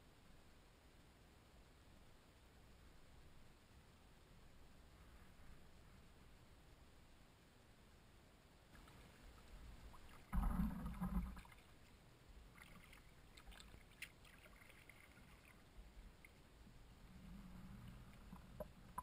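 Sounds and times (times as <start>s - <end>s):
water dripping: 12.5s - 16.5s, 17.8s - 19.0s.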